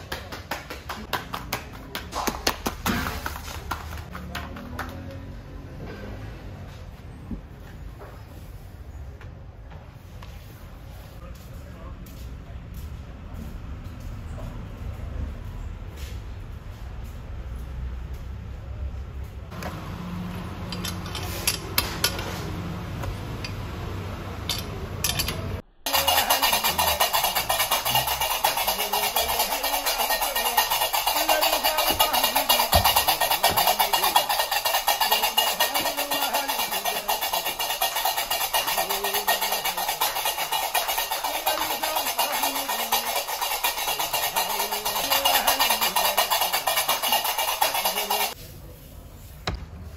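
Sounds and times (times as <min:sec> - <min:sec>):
metal peel scraping on pebbles: 0:24.5 - 0:48.4.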